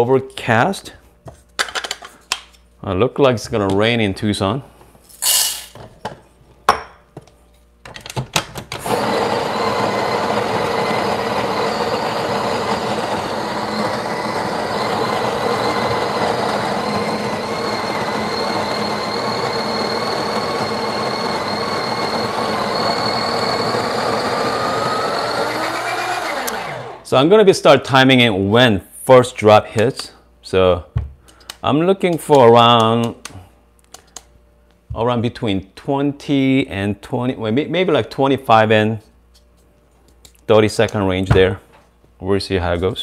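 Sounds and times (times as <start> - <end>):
coffee grinder whirring: 8.8 - 27.1.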